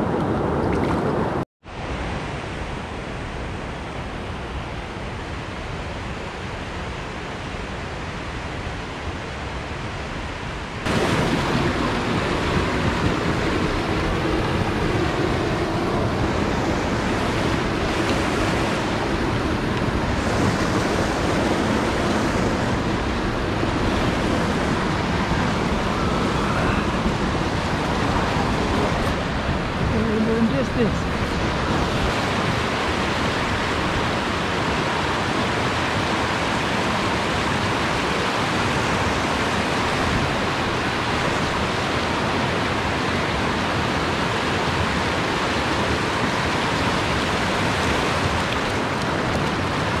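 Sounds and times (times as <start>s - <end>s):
stream rushing over rocks: 0.1s - 50.0s.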